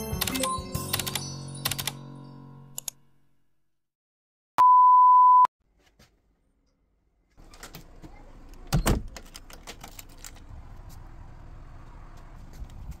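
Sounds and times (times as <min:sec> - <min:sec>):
test-card beep tone: 0:04.6 - 0:05.5.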